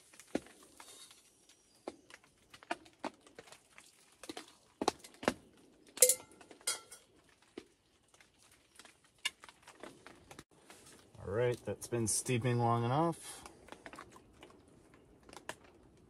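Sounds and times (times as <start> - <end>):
metal cookware clinking: 6.0 - 7.0
ringing metallic clink: 6.0 - 7.0.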